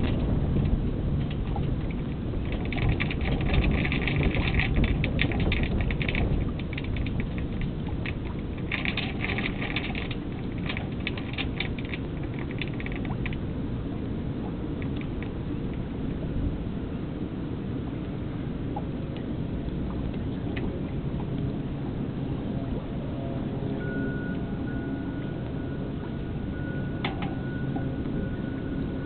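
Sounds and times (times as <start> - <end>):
rapid crackling: 0.0 - 16.0
wind rumbling on microphone: 0.0 - 29.0.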